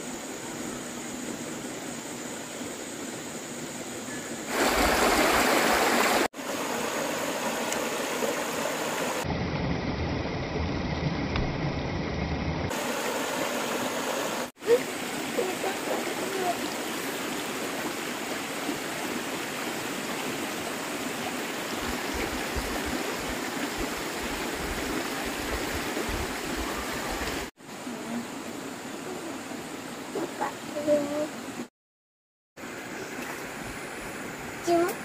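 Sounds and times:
stream rushing over rocks: 4.4 - 9.3, 12.7 - 31.6.

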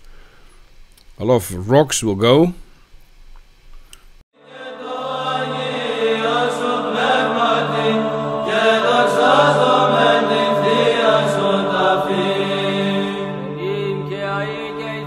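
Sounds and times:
chanted singing: 4.4 - 15.0
low held drone: 4.4 - 15.0.

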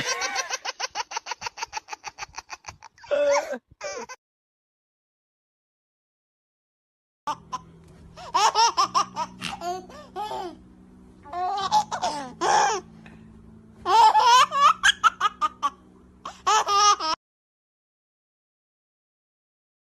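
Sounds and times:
woman laughing hard: 0.0 - 4.2.

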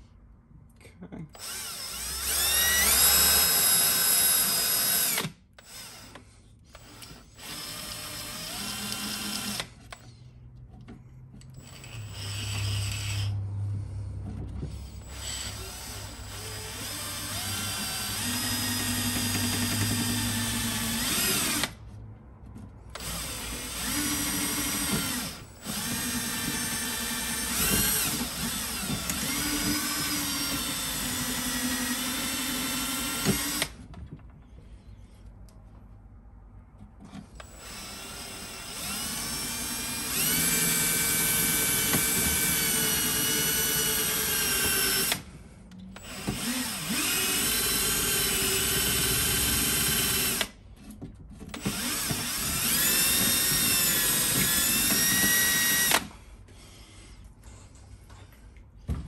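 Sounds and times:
cordless drill motor whining: 1.4 - 10.0, 11.6 - 13.4, 14.8 - 21.8, 22.9 - 33.8, 37.4 - 45.3, 46.0 - 50.6, 51.5 - 56.2.

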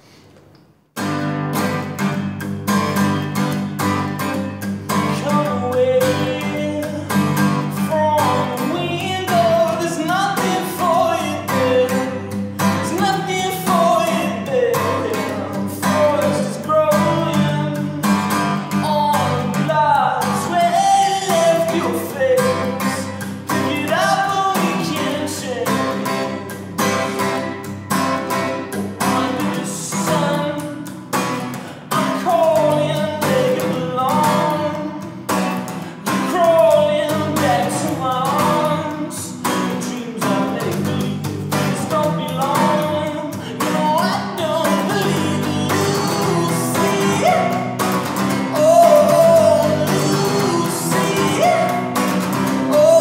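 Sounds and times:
strummed acoustic guitar: 0.9 - 53.0
man singing: 3.3 - 53.0.

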